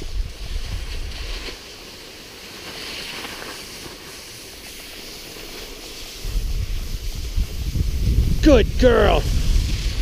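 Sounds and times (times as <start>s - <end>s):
wind on microphone: 0.0s - 1.6s, 6.0s - 10.0s
skis hissing over snow: 0.0s - 10.0s.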